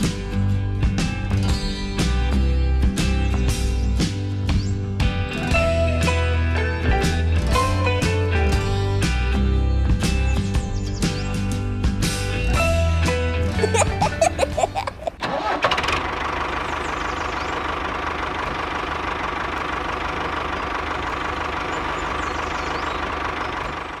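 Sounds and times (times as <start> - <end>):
cartoon laughter: 13.4 - 15.4.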